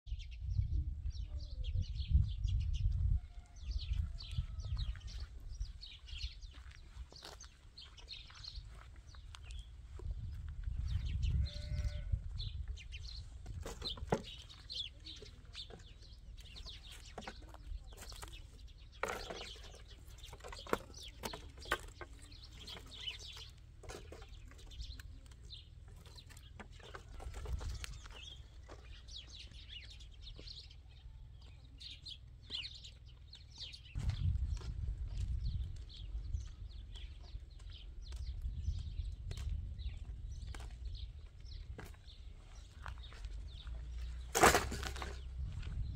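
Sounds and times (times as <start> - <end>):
birds chirping: 0.1 - 45.9
livestock bleating: 11.2 - 12.3.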